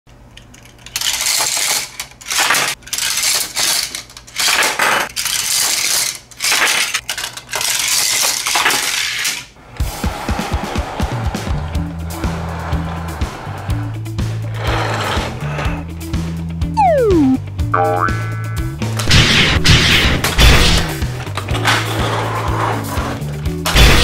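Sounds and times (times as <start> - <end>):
plastic toy clattering and clicking: 0.3 - 9.5.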